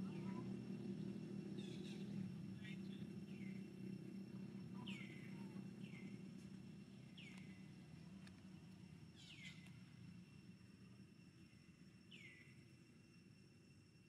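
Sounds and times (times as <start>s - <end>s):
low hum: 0.0s - 14.0s
bird chirps: 1.0s - 3.7s, 4.7s - 6.3s, 7.0s - 7.7s, 9.2s - 9.8s, 12.1s - 12.5s.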